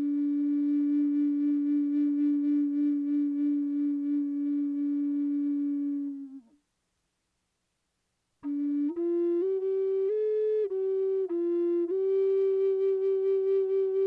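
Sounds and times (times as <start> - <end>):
flute-like held note: 0.0 - 6.6, 8.4 - 14.0.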